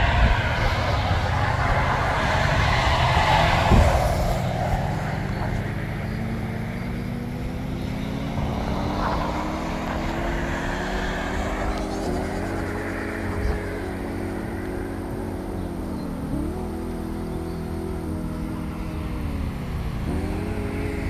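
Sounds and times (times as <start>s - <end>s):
engine hum rising in pitch: 0.0s - 21.0s
vehicle passing loudly: 0.0s - 21.0s.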